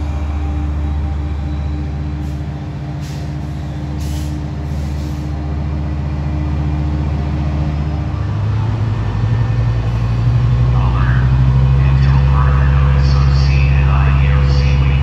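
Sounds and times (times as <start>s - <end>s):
diesel locomotive engine drone: 0.0s - 15.0s
short hisses of air: 3.0s - 5.3s.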